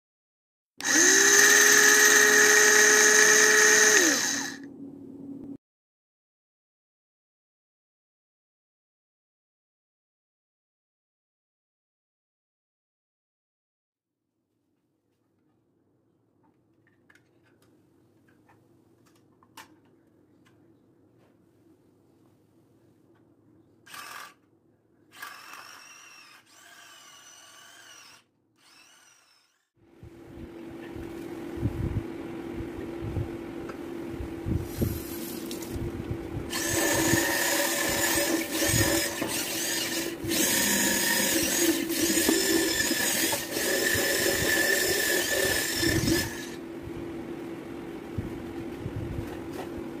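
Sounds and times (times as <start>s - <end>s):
electric chopper motor whirring: 0.8s - 4.6s, 36.5s - 46.6s.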